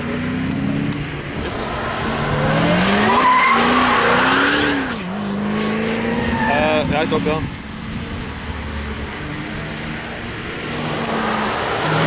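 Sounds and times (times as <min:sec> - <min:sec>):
car engine revving hard: 0:00.0 - 0:12.0
tyres squealing: 0:01.6 - 0:05.1, 0:06.0 - 0:07.2.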